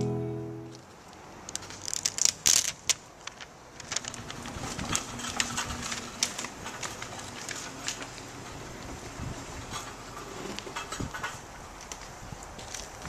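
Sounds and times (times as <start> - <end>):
paper rustling and crinkling: 1.5 - 8.3.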